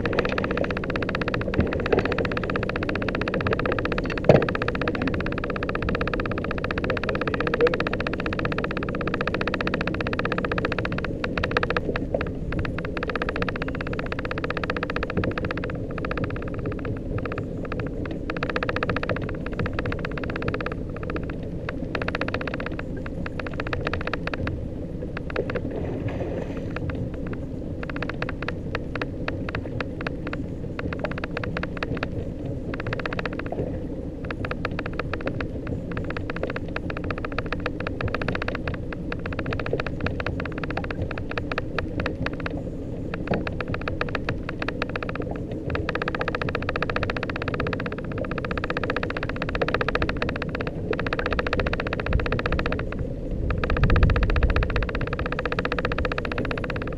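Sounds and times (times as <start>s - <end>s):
outboard motor running: 0.0s - 25.8s, 26.6s - 56.9s.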